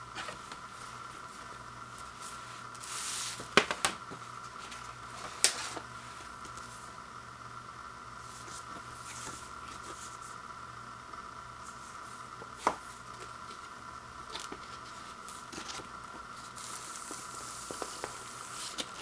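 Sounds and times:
faint steady hum: 0.0 - 19.0
record sleeve rustling: 0.1 - 6.8, 8.2 - 10.4, 11.6 - 19.0
record sliding against paper sleeve: 2.2 - 3.5, 14.3 - 19.0.

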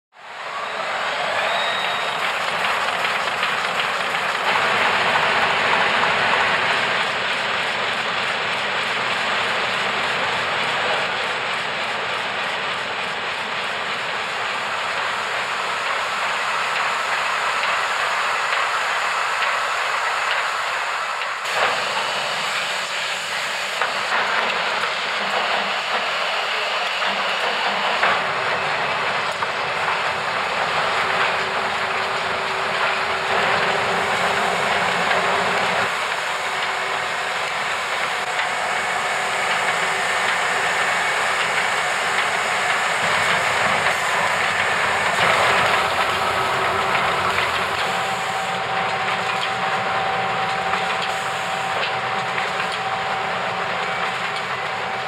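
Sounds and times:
printing machinery din: 21.5 - 55.0.

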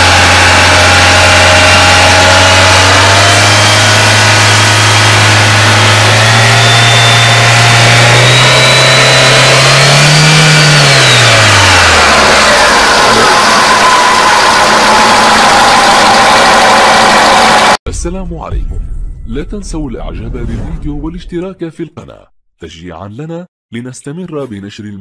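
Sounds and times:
car engine revving: 0.0 - 17.8.

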